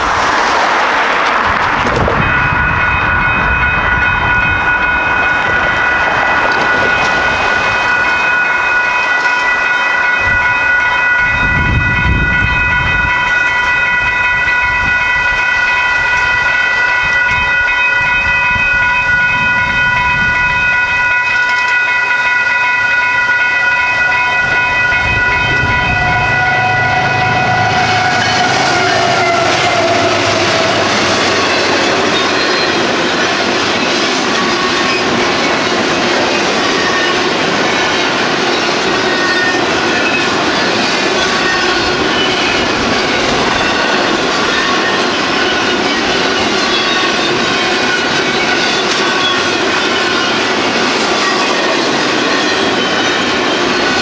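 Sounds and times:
approaching train rumble: 0.0s - 54.0s
railroad crossing bell ringing: 1.8s - 54.0s
road traffic rumble: 23.7s - 35.9s.

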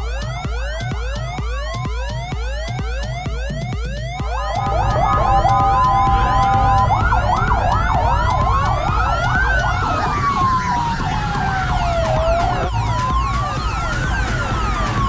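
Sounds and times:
wailing siren: 0.0s - 15.0s
warbling yelp siren: 0.1s - 15.0s
two-note siren: 4.1s - 15.0s
low engine rumble: 4.2s - 15.0s.

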